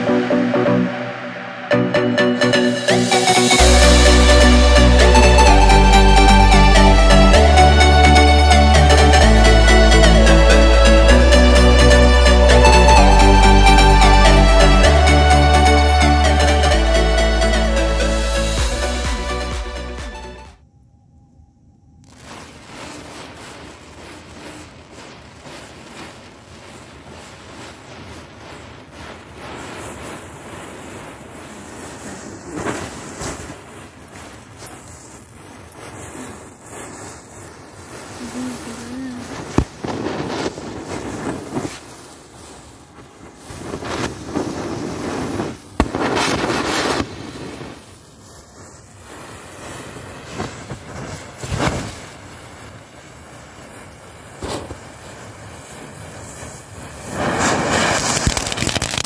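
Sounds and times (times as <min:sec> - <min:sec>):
small firecrackers cracking: 0:00.0 - 0:20.3, 0:22.0 - 0:59.0
matchsticks flaring and crackling: 0:22.0 - 0:59.0.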